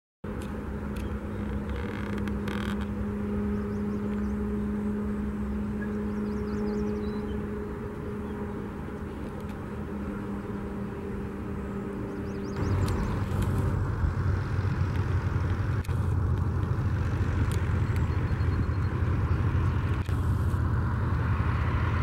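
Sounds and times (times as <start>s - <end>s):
distant engine drone: 0.2s - 22.0s
low rumble: 1.2s - 22.0s.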